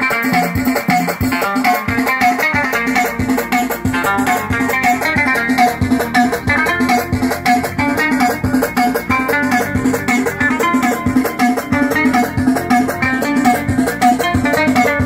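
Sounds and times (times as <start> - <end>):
plucked lute melody: 0.0 - 15.0.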